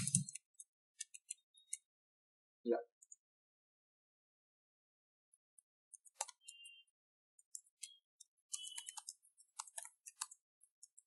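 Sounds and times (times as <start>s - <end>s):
computer keyboard typing: 0.0s - 1.9s, 5.6s - 11.0s.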